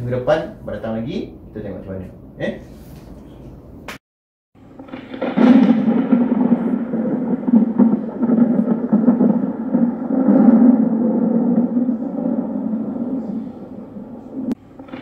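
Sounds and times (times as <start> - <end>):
low rumbling drone: 4.6 - 15.0.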